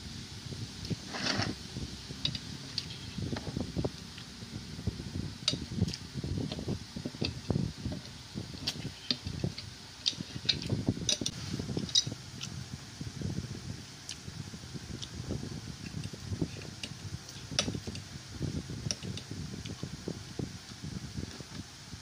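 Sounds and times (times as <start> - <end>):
handling knocks and rubbing: 0.9 - 1.6.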